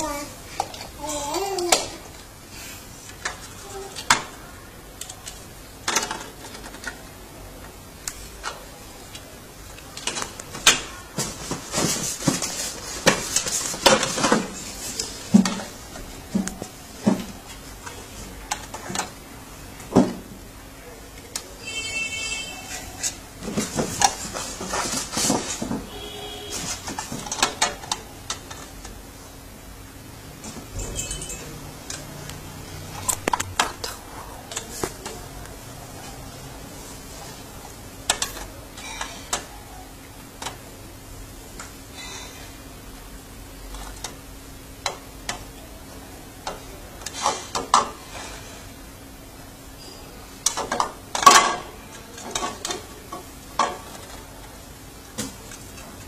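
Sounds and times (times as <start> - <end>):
plastic blocks clicking and knocking: 5.0 - 7.0.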